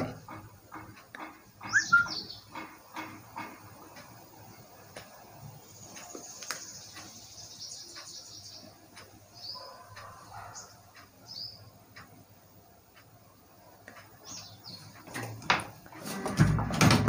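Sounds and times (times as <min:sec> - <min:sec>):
faint bird chirps: 0:01.6 - 0:02.5.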